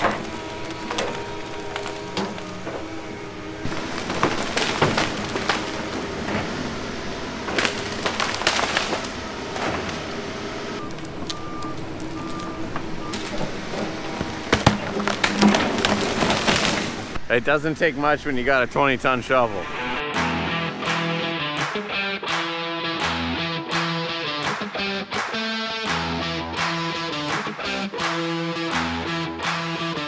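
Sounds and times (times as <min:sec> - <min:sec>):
wood snapping: 0:00.0 - 0:02.9, 0:03.6 - 0:06.5, 0:07.4 - 0:10.0, 0:10.8 - 0:17.2
trees cracking and splintering: 0:00.0 - 0:17.3
excavator diesel engine: 0:00.0 - 0:30.0.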